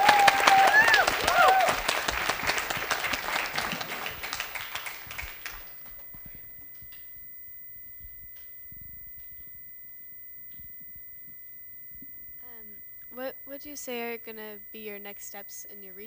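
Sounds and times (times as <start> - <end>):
audience applause: 0.0 - 6.0
faint steady high tone: 2.5 - 16.0.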